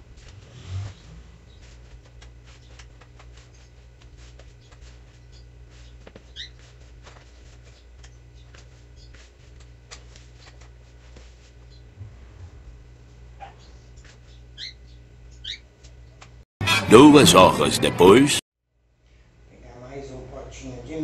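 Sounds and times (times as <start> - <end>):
steady low hum: 0.0 - 16.9
hands kneading crumbly dough: 1.4 - 12.3.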